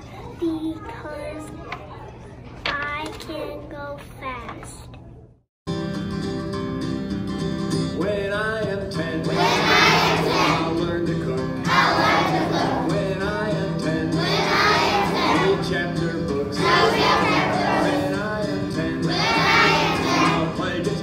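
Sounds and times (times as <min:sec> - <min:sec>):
backing music: 0:05.7 - 0:21.0
children singing together: 0:09.2 - 0:10.9, 0:11.6 - 0:21.0.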